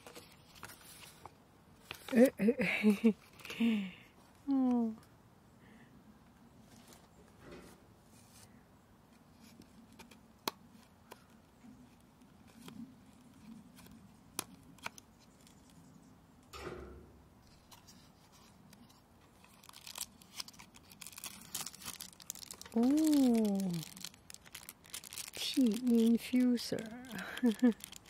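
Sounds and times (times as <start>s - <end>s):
plastic wrapping rustling: 17.5s - 28.0s.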